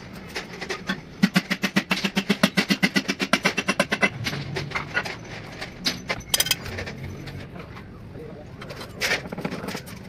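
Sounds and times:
rapid hammering on metal: 1.2 - 4.2.

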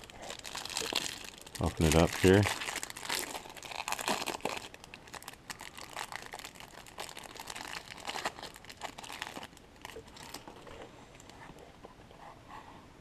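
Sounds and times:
cellophane wrapper crinkling: 0.0 - 11.4.

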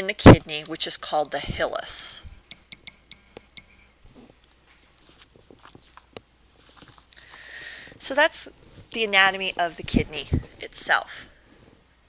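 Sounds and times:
stylus tapping on touchscreen: 1.2 - 4.0.

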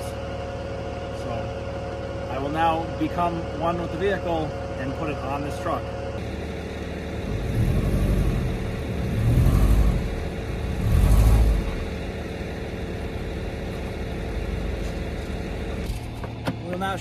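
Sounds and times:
car engine revving: 6.2 - 16.0.

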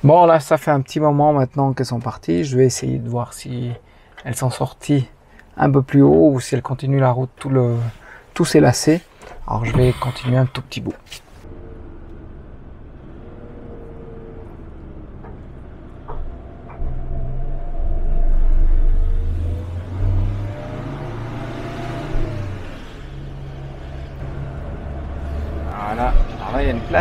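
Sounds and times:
truck engine drone: 11.3 - 27.0
faint tone rising and falling: 11.4 - 27.0.

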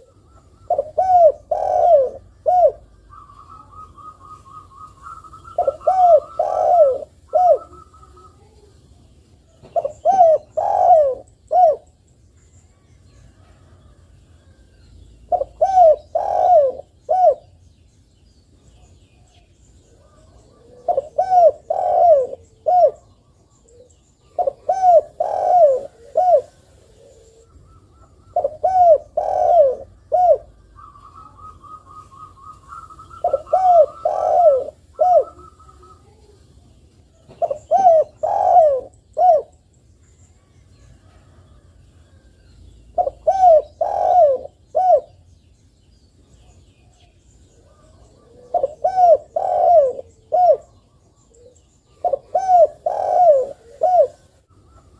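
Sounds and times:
dove cooing: 0.0 - 8.7, 9.5 - 12.0, 15.3 - 17.6, 19.9 - 36.4, 37.1 - 39.7, 42.9 - 45.3, 47.6 - 54.9.

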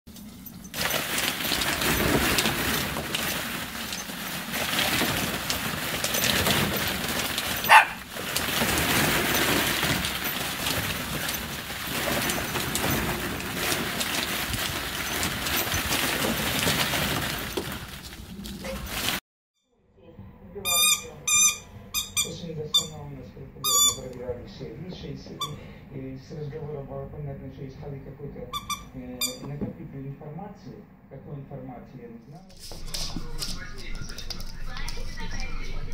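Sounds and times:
plastic balls clattering: 0.1 - 19.2.

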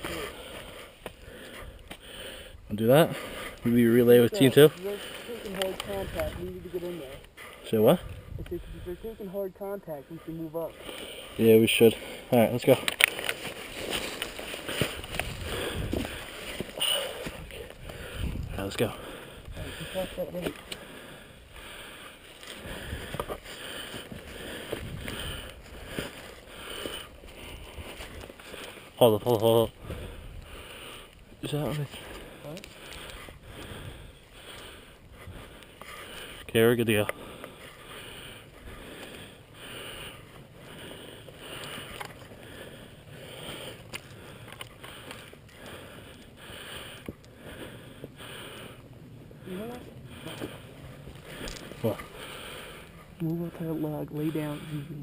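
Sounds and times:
footsteps in dry leaves: 13.1 - 16.8.

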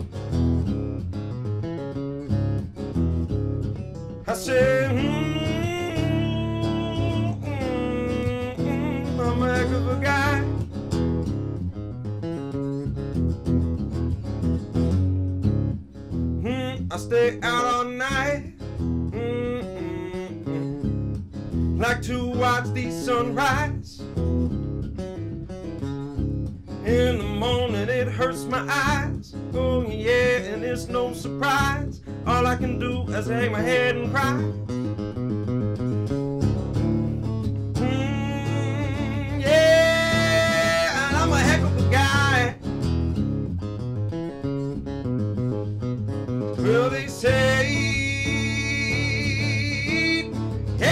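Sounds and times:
acoustic guitar playing: 0.0 - 50.9
man singing: 4.2 - 10.6, 16.4 - 20.9, 21.8 - 24.1, 26.8 - 34.6, 37.7 - 42.6, 46.6 - 50.9.

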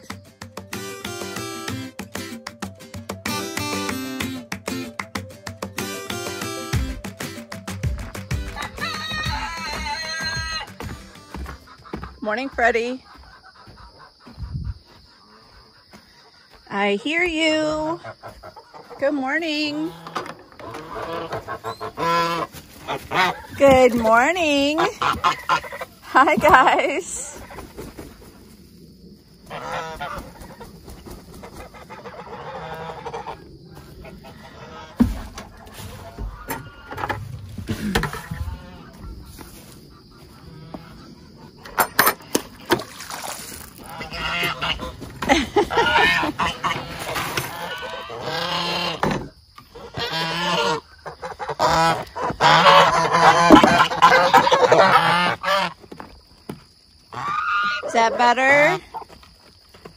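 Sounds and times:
geese honking: 5.8 - 27.7, 29.4 - 42.8, 43.7 - 55.9, 57.1 - 59.1.

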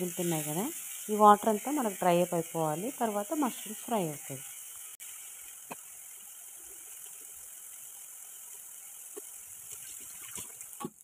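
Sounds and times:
mushrooms sizzling in oil: 0.0 - 11.0.

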